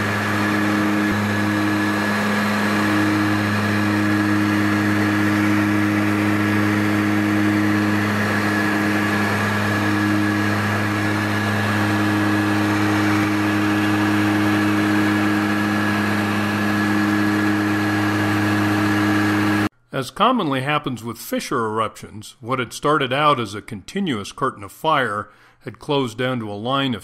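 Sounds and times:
aircraft engines droning: 0.0 - 19.6
steady high whine: 0.0 - 19.7.

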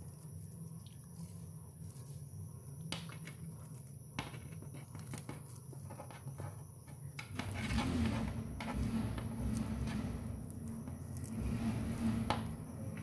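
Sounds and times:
steady low hum: 0.0 - 13.0
low rumble: 7.4 - 13.0.

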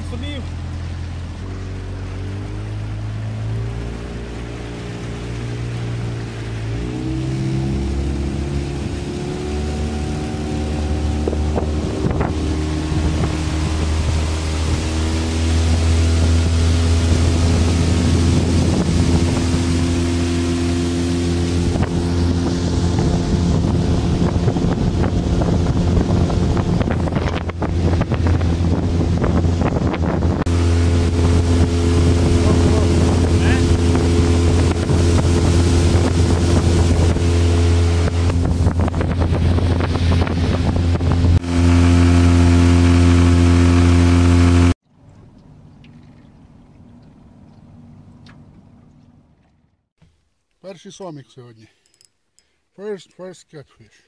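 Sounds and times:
outboard motor running: 0.0 - 49.9
wind buffeting microphone: 3.4 - 41.5.

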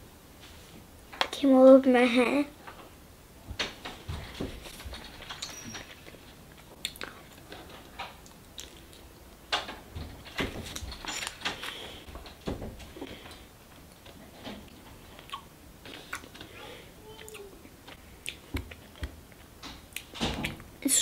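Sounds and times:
child chewing and licking: 5.2 - 7.5, 8.2 - 9.1, 13.9 - 16.5, 17.1 - 20.6.

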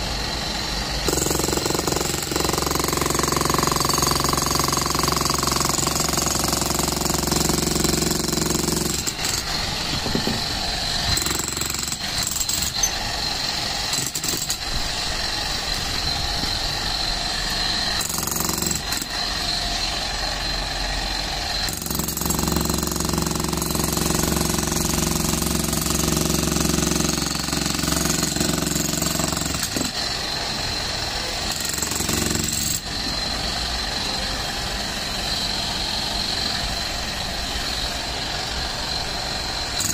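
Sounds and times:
demolition hammer chiselling concrete: 0.3 - 14.8, 16.9 - 19.6, 21.2 - 30.4, 31.0 - 33.5, 39.5 - 39.9.

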